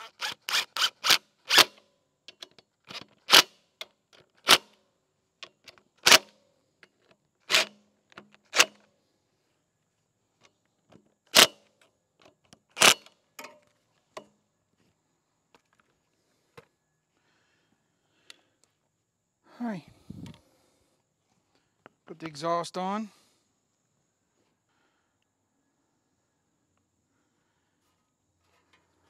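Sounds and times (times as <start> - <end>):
cordless drill driving bolts: 0.0 - 1.8, 7.5 - 7.8.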